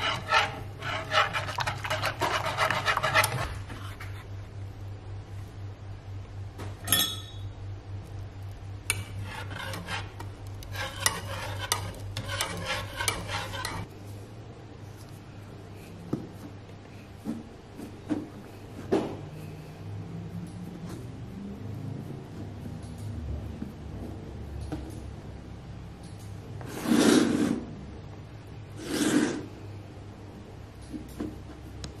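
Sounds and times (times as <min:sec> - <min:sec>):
whisk scraping metal saucepan: 0:00.0 - 0:04.1, 0:08.9 - 0:13.9
steady low hum: 0:00.0 - 0:32.0.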